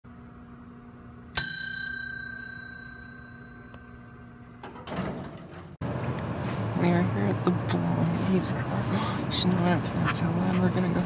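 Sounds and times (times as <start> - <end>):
bell-like chime: 1.4 - 3.8.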